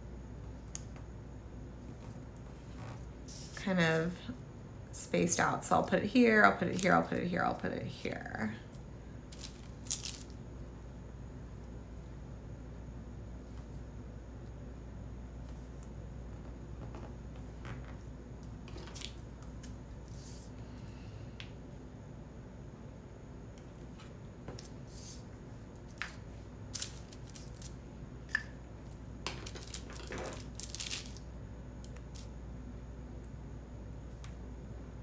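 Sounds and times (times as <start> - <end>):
tape rustling: 9.3 - 10.4, 25.8 - 27.8, 29.3 - 32.3.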